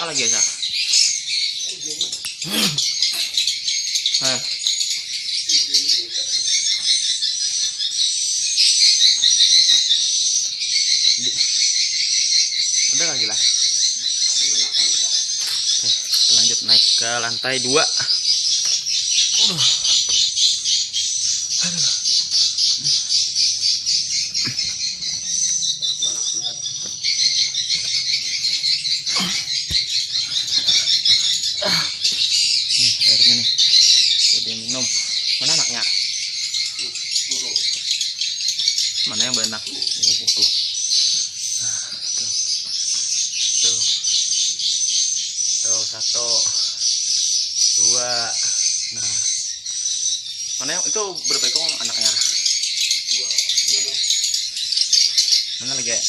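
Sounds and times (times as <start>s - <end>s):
birds chittering: 0.0s - 56.0s
swiftlets chirping: 0.0s - 56.0s.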